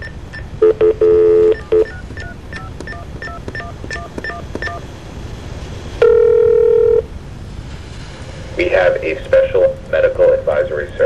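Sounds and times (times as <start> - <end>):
phone ringing tone: 0.0 - 4.9, 6.0 - 7.1
touch-tone keypad beeps: 0.0 - 4.9, 6.0 - 7.0.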